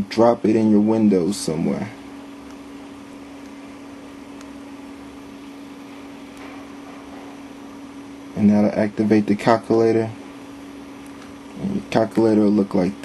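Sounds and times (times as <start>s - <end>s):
electrical hum: 0.0s - 13.0s.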